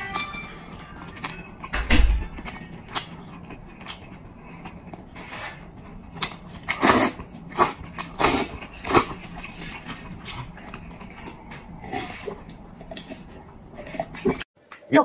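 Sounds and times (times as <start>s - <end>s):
wet mouth smacks and chewing: 2.5s - 5.0s, 6.1s - 11.4s.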